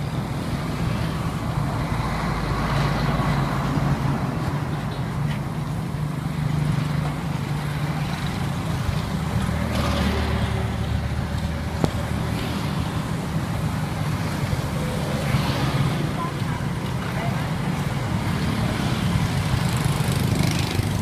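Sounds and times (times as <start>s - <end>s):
traffic engine hum: 0.0s - 21.0s
vehicle passing: 7.6s - 21.0s.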